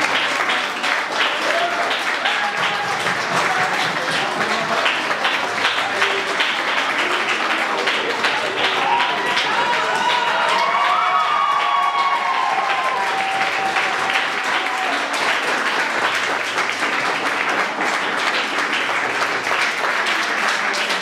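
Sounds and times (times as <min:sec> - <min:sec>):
voices cheering: 0:00.0 - 0:16.0
audience applause: 0:00.0 - 0:21.0.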